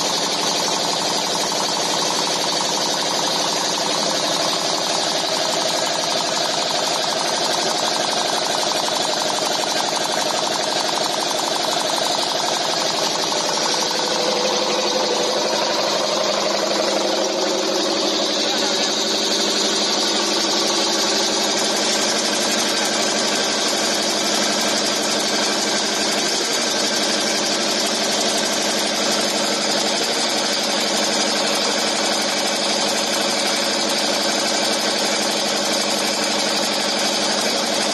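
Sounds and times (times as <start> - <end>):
nail making machine clattering: 0.0 - 37.9.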